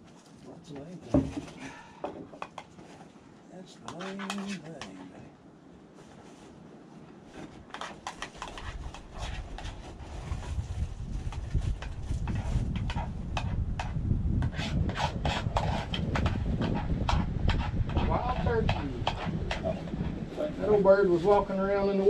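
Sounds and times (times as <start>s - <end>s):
wind buffeting microphone: 6.6s - 22.0s.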